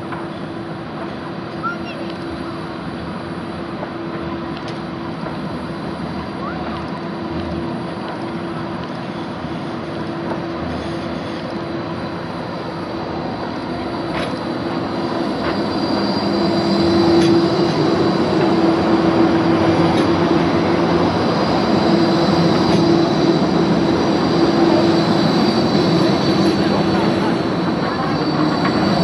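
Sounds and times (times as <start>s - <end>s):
tram rolling past: 0.0s - 29.0s
faint high wheel squeal: 13.4s - 19.6s.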